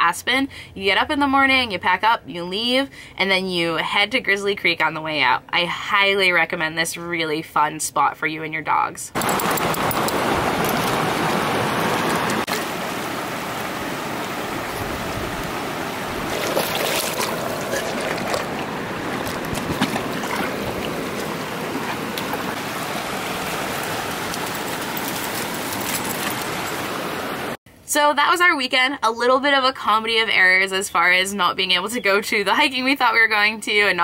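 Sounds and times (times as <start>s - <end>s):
creek rushing over rocks: 9.2s - 27.6s.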